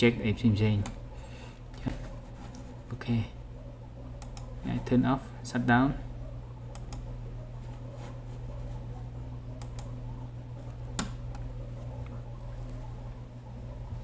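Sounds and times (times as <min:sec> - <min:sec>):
steady low hum: 0:00.0 - 0:14.0
computer mouse clicks: 0:04.2 - 0:04.5, 0:06.7 - 0:07.1, 0:09.6 - 0:10.0, 0:11.0 - 0:11.5.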